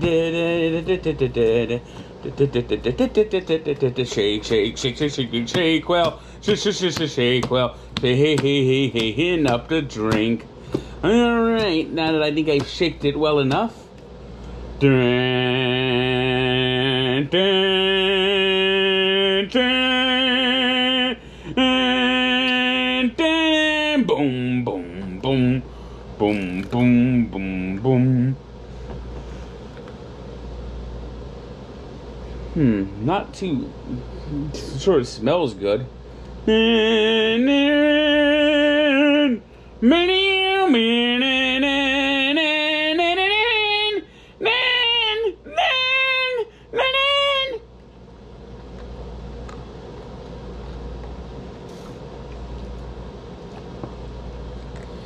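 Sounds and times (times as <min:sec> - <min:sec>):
man chanting long notes: 0:14.8 - 0:25.6, 0:40.0 - 0:47.6.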